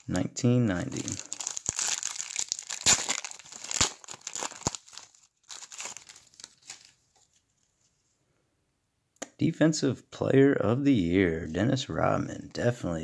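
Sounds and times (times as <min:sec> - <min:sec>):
wrapper crinkling and tearing: 0:00.8 - 0:07.4.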